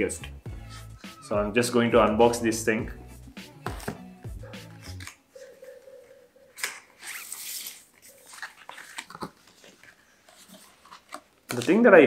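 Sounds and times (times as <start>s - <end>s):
cardboard tear strip ripping: 4.8s - 5.2s, 6.6s - 9.3s.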